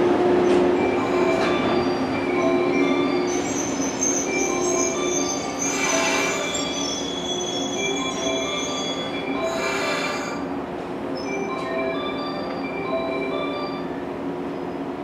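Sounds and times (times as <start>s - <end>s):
train equipment hum: 0.0s - 15.0s
whining tones: 0.8s - 10.5s.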